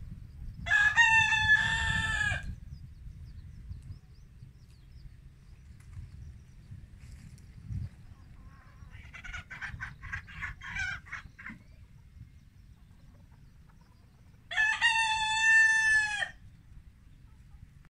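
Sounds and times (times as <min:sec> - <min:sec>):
rooster crowing: 0:00.6 - 0:02.5, 0:14.5 - 0:16.4
chickens clucking: 0:07.8 - 0:15.6.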